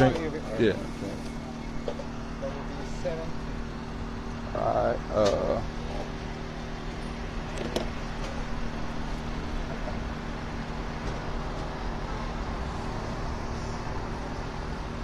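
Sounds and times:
passing traffic: 0.0s - 15.0s.

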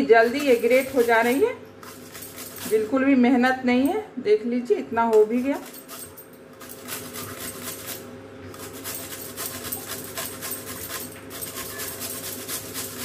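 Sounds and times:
radish rasping on grater: 0.0s - 2.9s, 5.6s - 13.0s.

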